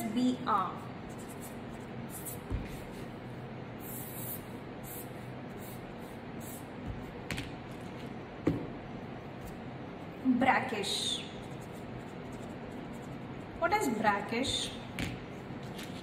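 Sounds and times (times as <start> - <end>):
pen scratching on paper: 1.1 - 2.9, 11.4 - 13.6.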